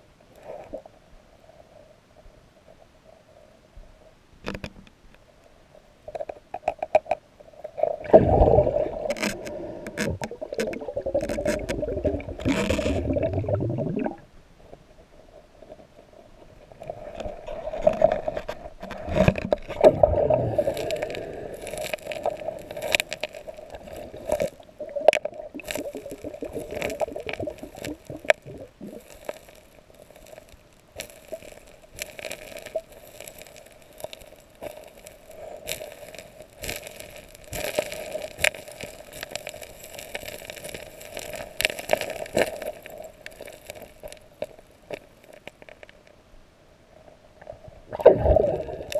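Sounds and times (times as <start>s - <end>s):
steady underwater hum: 0.0s - 48.9s
underwater gravel scraping: 7.7s - 14.1s, 15.2s - 46.0s, 48.0s - 48.9s
stones clicking and knocking: 20.6s - 46.0s.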